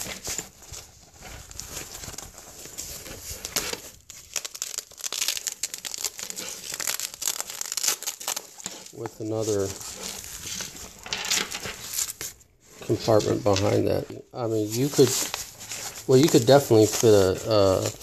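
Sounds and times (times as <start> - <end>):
stiff fabric bag rustling: 12.8 - 18.0.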